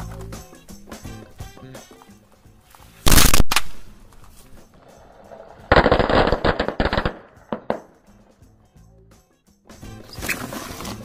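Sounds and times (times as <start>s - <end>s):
bang snaps cracking: 3.1s - 4.0s, 5.7s - 8.0s.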